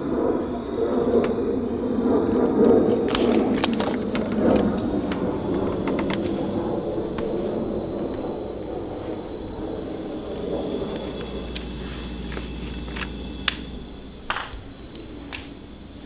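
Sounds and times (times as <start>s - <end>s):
steady low rumbling noise: 0.0s - 16.0s.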